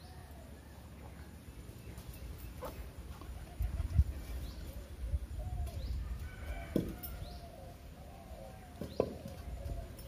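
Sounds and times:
chickens clucking: 1.9 - 5.8.

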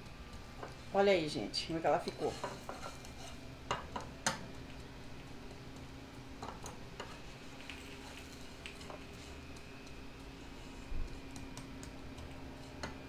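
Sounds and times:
gas burner humming: 0.0 - 13.0.

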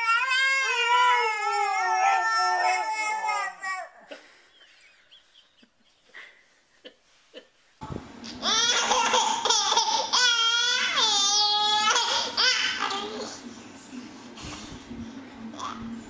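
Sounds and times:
baby squealing and wailing: 0.0 - 4.1.

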